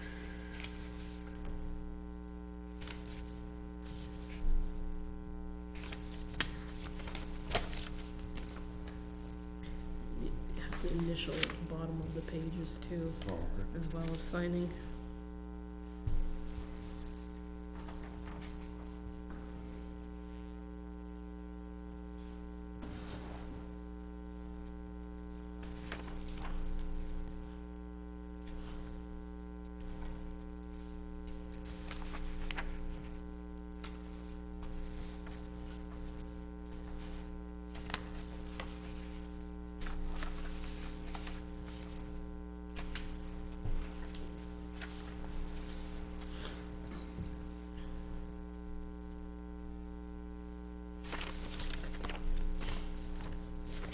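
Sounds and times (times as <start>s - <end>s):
electrical mains hum: 0.0s - 53.9s
papers rustling and knocking: 5.8s - 9.0s, 16.0s - 19.9s, 22.8s - 23.8s, 25.6s - 27.4s, 29.8s - 48.0s, 51.0s - 53.9s.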